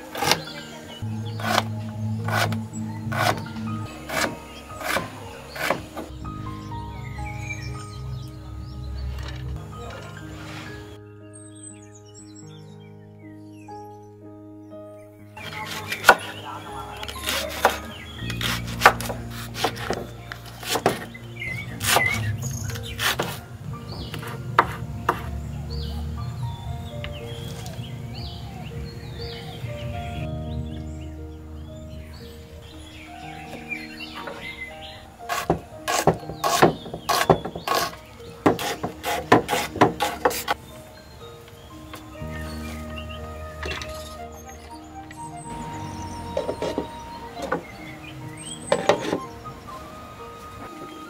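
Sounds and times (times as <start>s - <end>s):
background music: 0.0s - 51.0s
birds chirping: 0.0s - 51.0s
knife chopping on wooden board: 4.1s - 6.1s, 20.6s - 21.1s, 35.3s - 40.6s.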